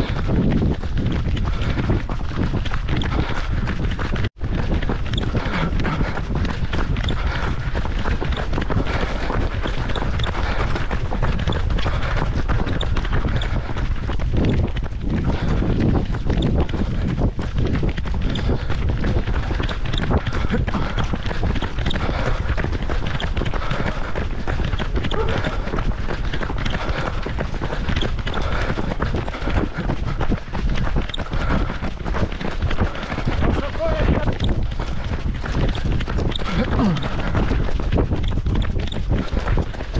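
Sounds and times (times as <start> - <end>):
wind buffeting microphone: 0.0 - 39.9
footfalls on wet asphalt: 16.9 - 39.9.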